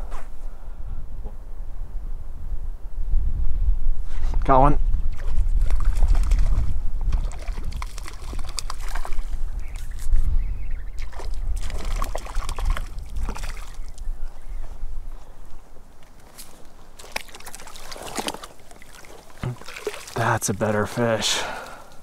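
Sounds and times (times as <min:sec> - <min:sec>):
wind rumble on microphone: 0:00.0 - 0:17.0
fish splashing in water: 0:05.2 - 0:09.9, 0:11.0 - 0:14.1, 0:17.0 - 0:20.2.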